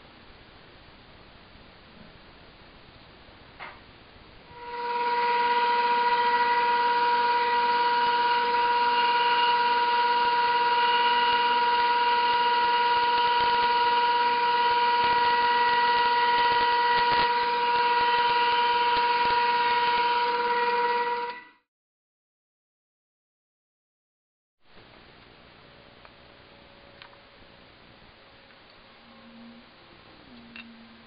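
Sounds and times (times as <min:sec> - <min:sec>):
band saw whining: 0:04.5 - 0:21.6.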